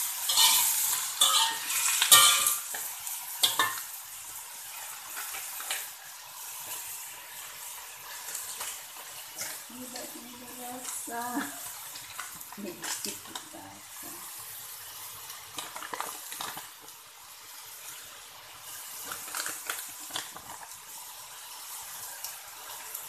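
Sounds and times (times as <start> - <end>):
metal spatula scraping a wok: 0.0 - 3.9
vegetables sizzling in a wok: 0.0 - 23.0.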